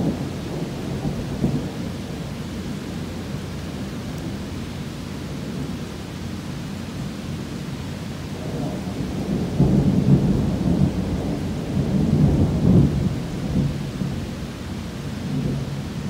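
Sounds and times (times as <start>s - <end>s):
thunder rumbling: 0.0s - 4.6s, 8.3s - 16.0s
steady rain: 0.0s - 16.0s.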